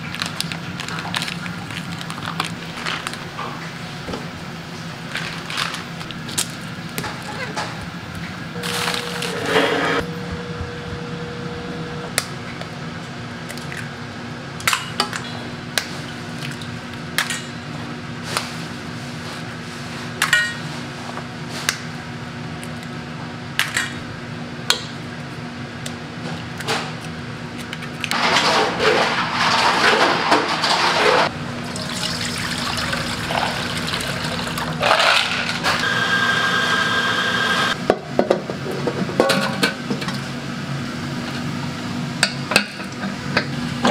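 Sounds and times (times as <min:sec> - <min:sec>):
low hum: 0:08.5 - 0:13.8.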